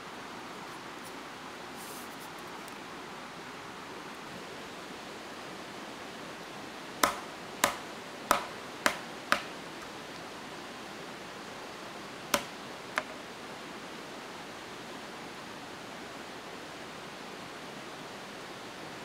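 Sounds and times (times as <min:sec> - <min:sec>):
forest stream rushing: 0:00.0 - 0:19.0
blade chopping wood: 0:07.0 - 0:09.6, 0:12.3 - 0:13.2.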